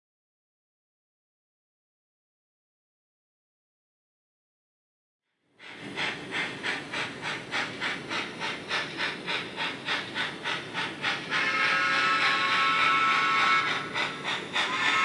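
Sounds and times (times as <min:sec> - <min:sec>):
steam locomotive chuffing: 0:05.5 - 0:15.0
steam whistle: 0:11.3 - 0:14.0, 0:14.6 - 0:15.0.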